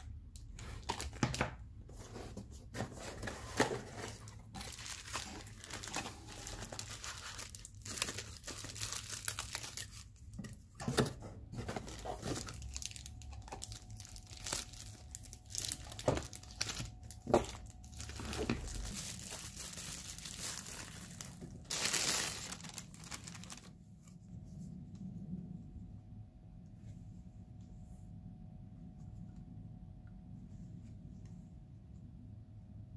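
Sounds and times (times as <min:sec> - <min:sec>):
bubble wrap crinkling: 0:02.7 - 0:10.6, 0:11.5 - 0:23.8.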